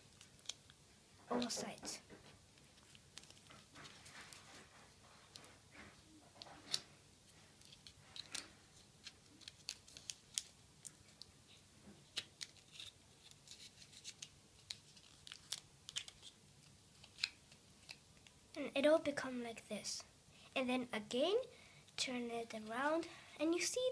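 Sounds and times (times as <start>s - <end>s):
paper crinkling: 2.6s - 18.3s.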